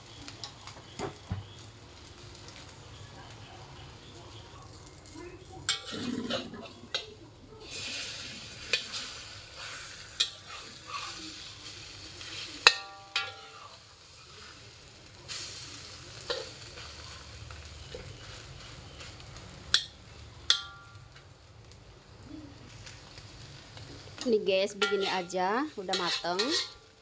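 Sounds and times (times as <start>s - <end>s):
egg and onion sizzling: 0.0s - 27.0s
metal spatula scraping a wok: 5.7s - 7.0s, 7.6s - 13.8s, 24.7s - 27.0s
spatula clanking against wok: 10.2s - 10.6s, 12.6s - 13.7s, 16.3s - 16.7s, 19.7s - 21.0s, 24.7s - 26.9s.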